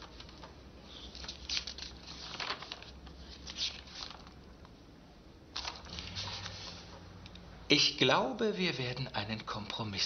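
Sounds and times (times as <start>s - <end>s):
paper rustling: 0.0s - 4.4s, 5.5s - 7.0s.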